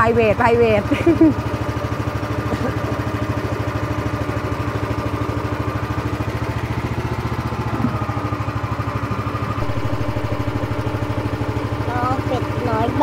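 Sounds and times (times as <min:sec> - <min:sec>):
boat engine running: 0:00.0 - 0:13.0.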